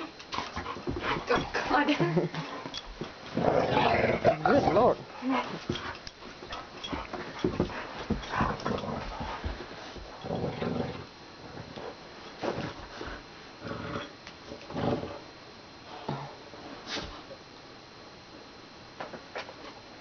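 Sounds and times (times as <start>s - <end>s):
dog growling: 3.3s - 5.6s, 8.3s - 9.4s, 10.2s - 11.8s, 13.6s - 15.3s
scuffling and knocks: 5.3s - 10.2s.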